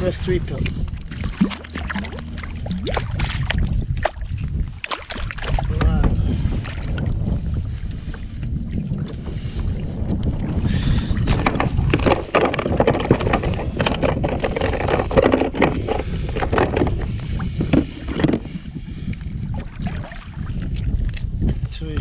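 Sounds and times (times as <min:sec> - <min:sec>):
wind buffeting microphone: 0:00.0 - 0:22.0
knocks clicks and rustles: 0:11.2 - 0:18.6.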